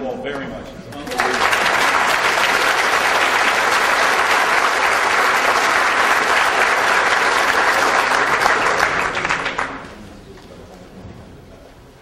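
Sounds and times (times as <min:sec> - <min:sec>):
audience applauding: 0:01.0 - 0:10.0.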